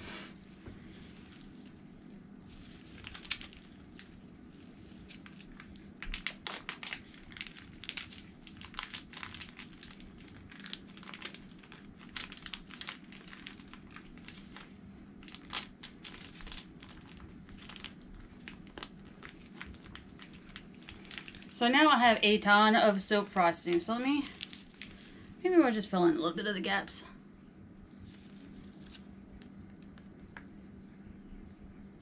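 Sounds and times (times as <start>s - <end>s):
steady low hum: 0.0s - 32.0s
plastic piping bag crinkling: 0.5s - 25.8s, 27.9s - 30.5s.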